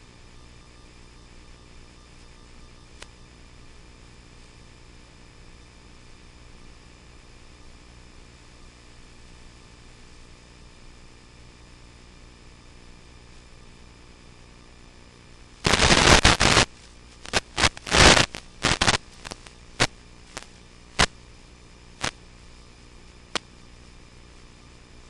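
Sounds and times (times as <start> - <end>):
crackling and sharp clicks: 3.0 - 3.2, 15.6 - 21.2, 22.0 - 22.2, 23.3 - 23.6
steady audio hiss: 8.2 - 25.0.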